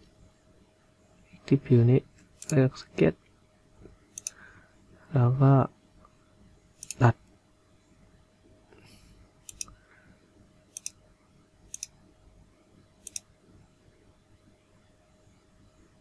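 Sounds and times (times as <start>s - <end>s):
faint steady hum: 0.0s - 16.0s
computer mouse clicks: 2.2s - 2.6s, 4.1s - 4.4s, 6.8s - 7.1s, 9.4s - 9.8s, 10.7s - 11.0s, 11.7s - 12.0s, 13.0s - 13.3s.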